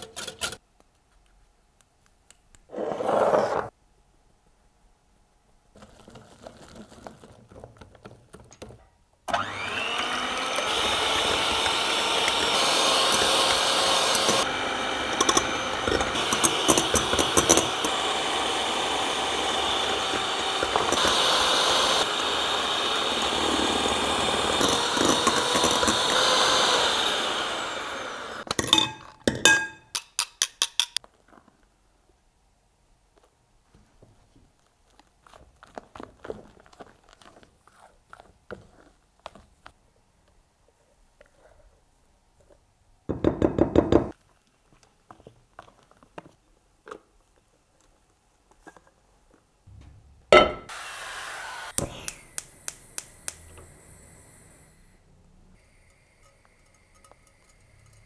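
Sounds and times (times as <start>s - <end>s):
electric hand mixer running: 9.3s - 28.5s, 50.7s - 52.4s.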